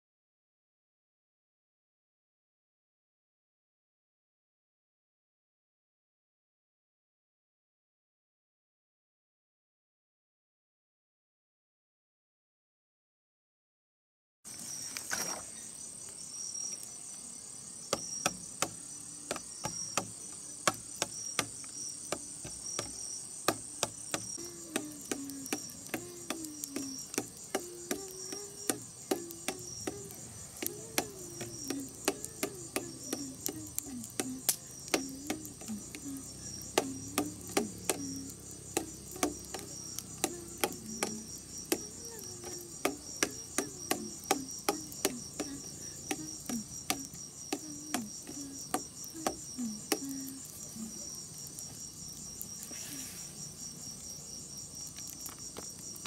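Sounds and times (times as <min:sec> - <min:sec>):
campfire crackling: 0:14.5 - 0:56.0
frogs croaking: 0:14.5 - 0:56.0
night insects chirring: 0:14.5 - 0:56.0.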